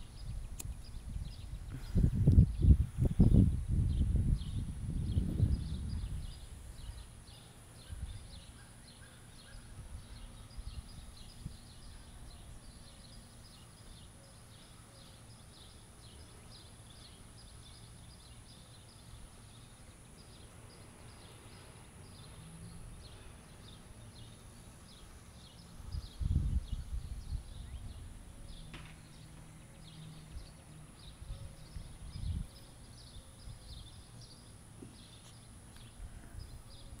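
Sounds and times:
wind bumps on microphone: 0.0s - 6.9s, 25.9s - 28.1s, 32.0s - 32.6s.

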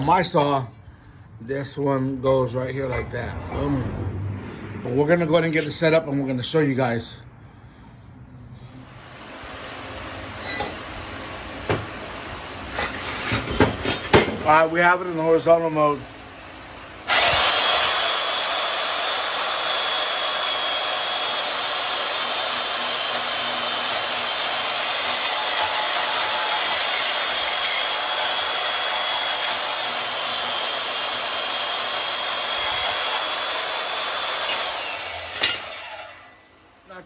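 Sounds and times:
bandsaw motor whine: 14.5s - 36.7s.

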